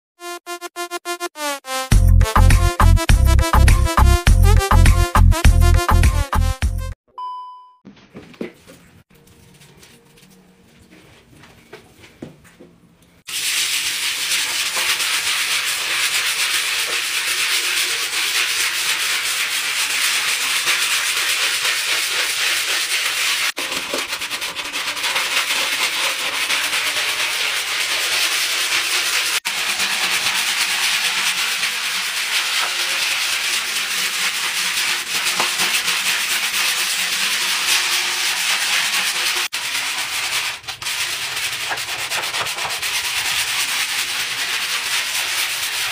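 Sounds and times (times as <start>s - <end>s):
scrub brush scrubbing tiled floor: 13.3s - 45.9s.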